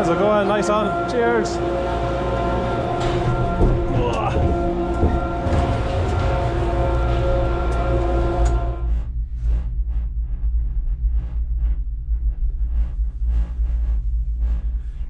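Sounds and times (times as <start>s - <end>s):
multi-tone machine whine: 0.0s - 9.6s
low steady rumble: 0.0s - 15.0s.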